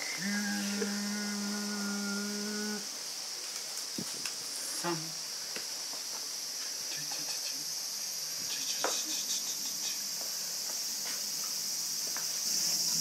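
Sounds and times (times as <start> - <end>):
high-pitched insect chorus: 0.0 - 13.0.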